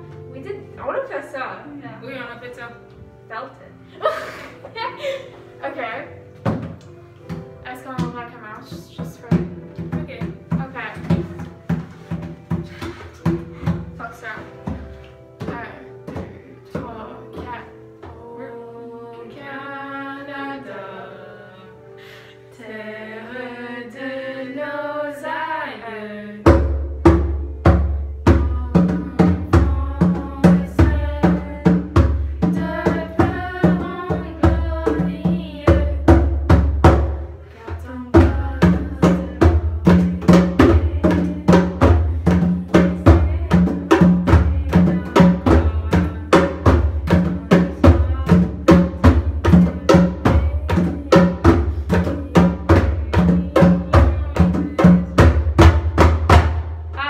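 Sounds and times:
congas and hand drum rhythm: 0:06.4 - 0:18.2, 0:26.4 - 0:57.0
anthem with sung melody: 0:18.1 - 0:26.8, 0:28.3 - 0:36.4.

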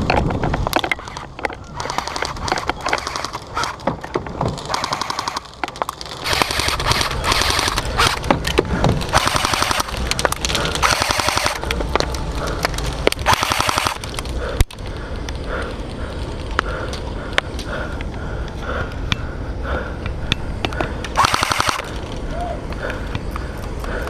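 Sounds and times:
wind rumble on microphone: 0:00.0 - 0:04.7
airsoft rifles firing bursts: 0:01.7 - 0:03.8, 0:04.7 - 0:05.6, 0:06.2 - 0:08.2, 0:09.1 - 0:10.0, 0:10.8 - 0:11.6, 0:13.2 - 0:14.0, 0:21.2 - 0:21.9.

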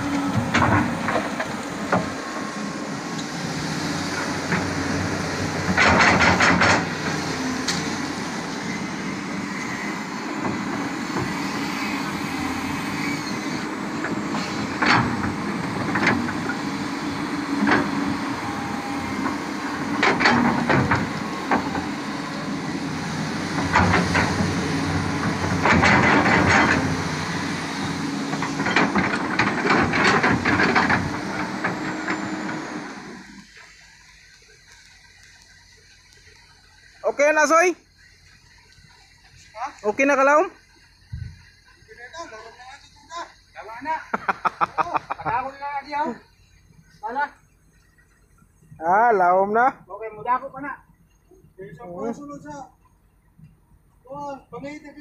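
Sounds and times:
excavator diesel engine running: 0:00.0 - 0:55.0
bucket scraping and clanking: 0:23.6 - 0:33.0.

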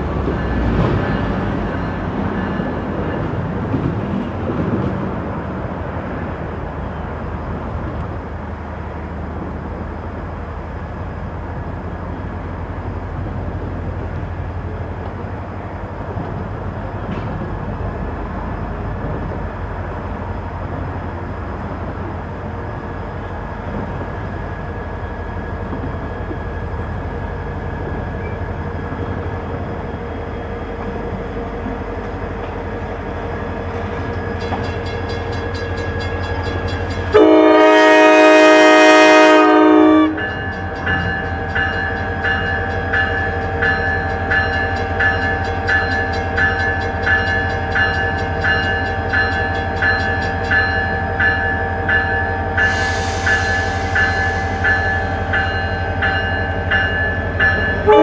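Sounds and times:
diesel locomotive rumbling: 0:00.0 - 0:58.0
locomotive horn blast: 0:37.1 - 0:40.4, 0:57.8 - 0:58.0.

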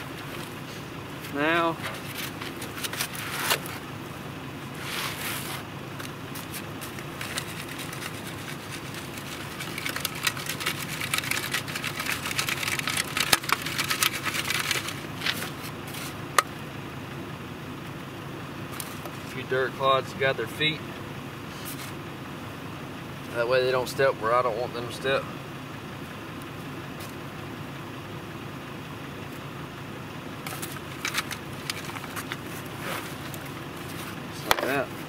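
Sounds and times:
soil rattling through mesh screen: 0:06.3 - 0:16.2.

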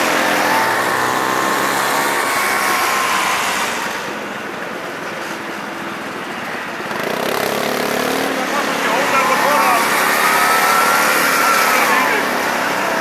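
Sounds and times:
motorcycle engines running: 0:00.0 - 0:13.0.

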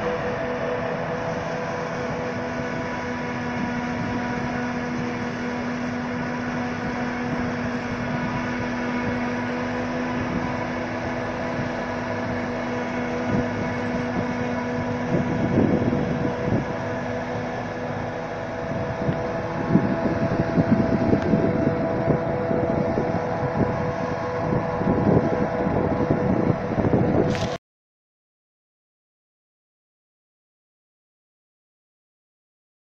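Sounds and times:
low rumbles: 0:00.0 - 0:27.6
tractor engine hum: 0:00.0 - 0:27.6
forage harvester chopping: 0:27.3 - 0:27.6.

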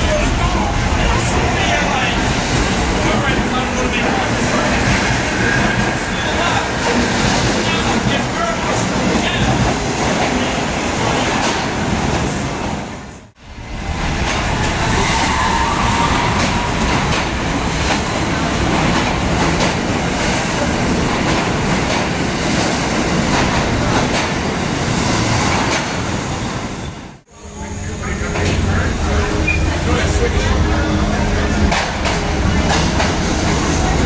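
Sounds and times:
train wheels rumbling on rail: 0:00.0 - 0:34.0
rail joint clicks: 0:16.3 - 0:19.9.

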